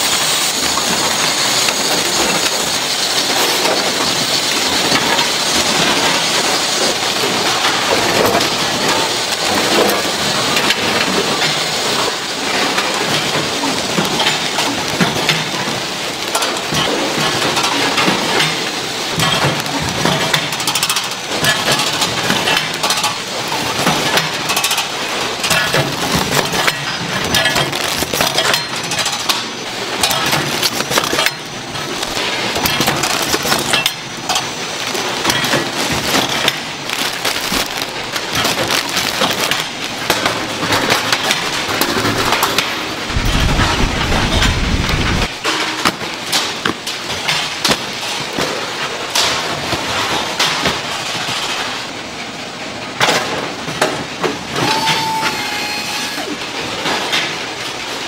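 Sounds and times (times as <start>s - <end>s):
packaging machinery clattering: 0.0s - 58.0s
low rumble: 43.0s - 45.3s.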